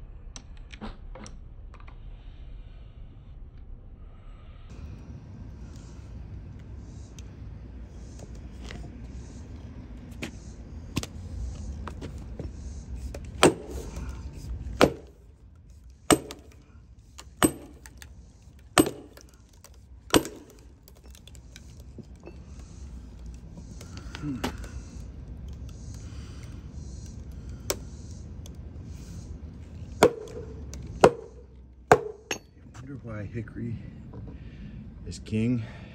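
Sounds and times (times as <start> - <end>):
sledgehammer striking steel wedge: 13.3 - 14.1, 14.7 - 15.3, 16.1 - 16.6, 17.4 - 18.0, 18.8 - 19.3, 20.1 - 20.7, 30.0 - 32.6.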